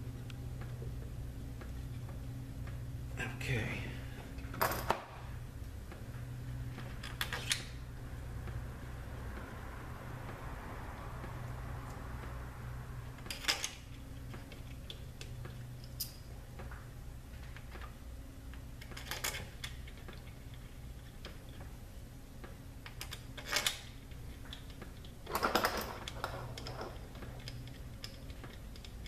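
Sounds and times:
low hum: 0.0 - 29.0
metal parts clicking and clinking: 13.2 - 16.3, 18.8 - 21.6, 22.8 - 29.0.

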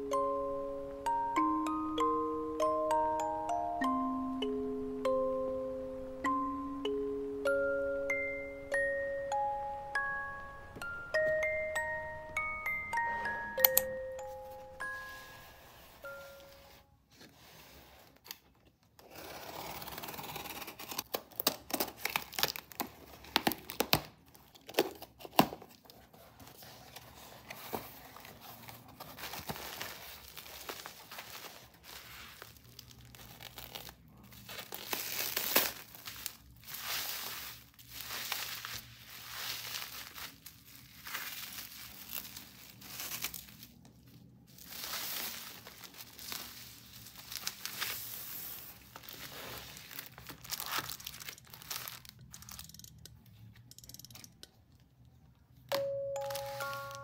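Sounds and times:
bubble wrap crinkling: 10.8 - 52.8, 56.2 - 57.0
packing tape ripping: 19.0 - 25.9, 29.3 - 43.8, 44.6 - 52.7.

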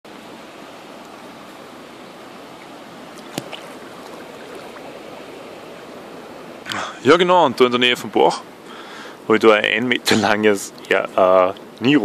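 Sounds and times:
stream running over pebbles: 0.1 - 7.9.

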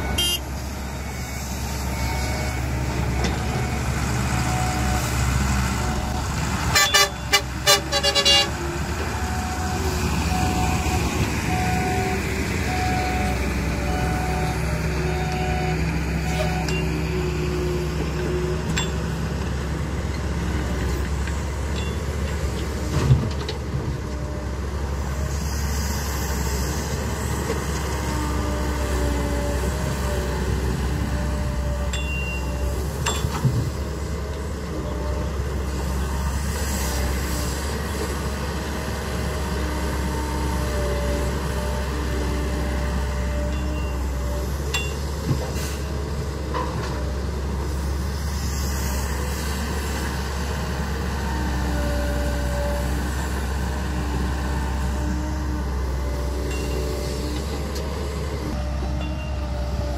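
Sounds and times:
truck horn toots: 0.0 - 0.6, 6.7 - 8.6
diesel engines running: 0.0 - 59.9.

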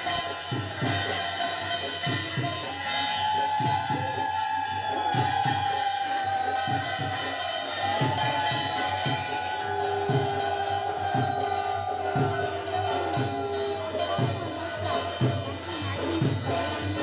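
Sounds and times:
devotional music: 0.0 - 17.0
jingling percussion: 0.0 - 17.0
steady drum beat: 0.0 - 17.0
long held notes: 3.2 - 15.3.

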